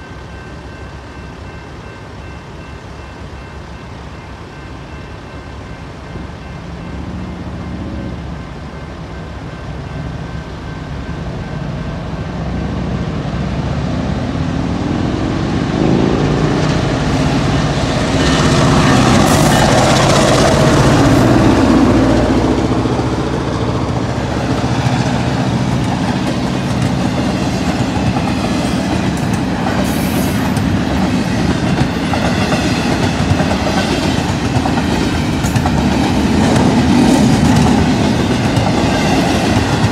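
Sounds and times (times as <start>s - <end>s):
diesel locomotive engine: 0.0s - 39.9s
train wheel clatter: 22.7s - 39.9s.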